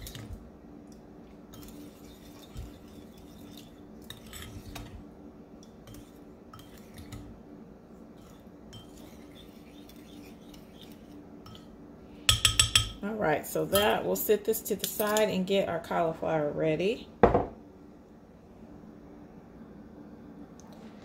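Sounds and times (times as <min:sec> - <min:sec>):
faint steady hum: 0:00.0 - 0:21.0
spoon scraping a bowl: 0:01.5 - 0:05.0, 0:05.8 - 0:07.3, 0:08.2 - 0:11.7
spoon clinking against bowl: 0:12.3 - 0:13.0.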